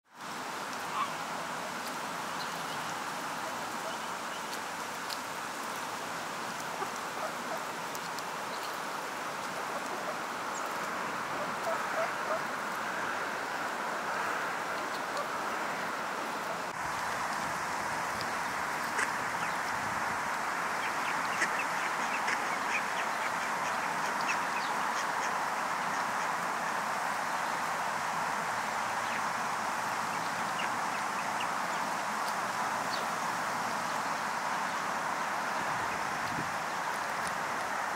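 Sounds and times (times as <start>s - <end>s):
outdoor background hiss: 0.1s - 37.9s
ducks quacking: 11.4s - 12.4s, 18.9s - 19.5s, 20.8s - 26.3s.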